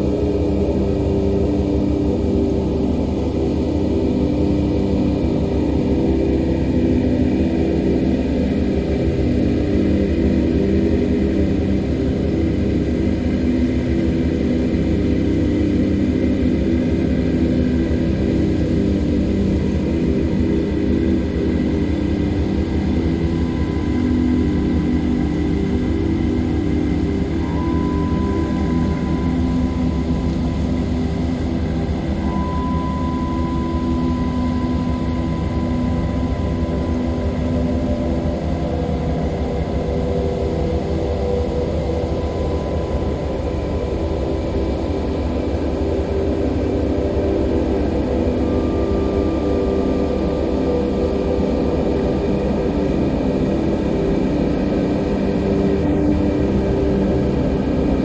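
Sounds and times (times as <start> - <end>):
ambient synth drone music: 0.0 - 58.0
steady low rumble: 17.9 - 58.0.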